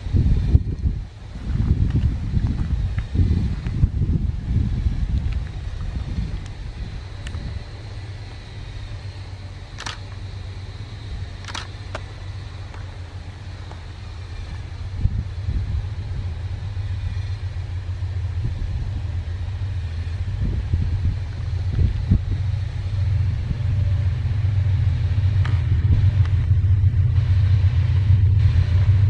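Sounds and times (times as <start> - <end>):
locomotive engines rumbling: 0.0 - 29.0
short sharp clicks: 9.8 - 10.2, 11.4 - 12.1.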